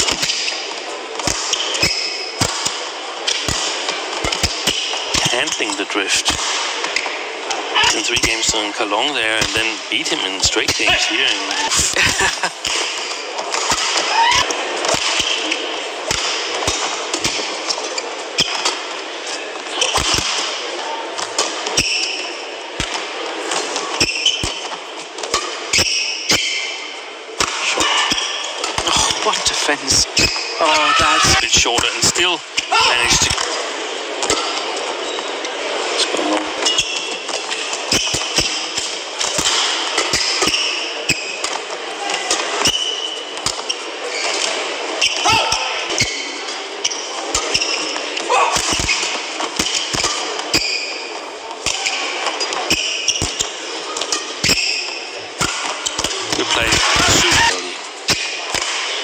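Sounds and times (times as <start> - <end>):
crowd noise in large hall: 0.0 - 59.0
shoes squeaking on court: 23.4 - 26.8, 32.5 - 41.7, 42.4 - 59.0
shoe squeaks on court: 36.6 - 37.3, 49.8 - 51.1.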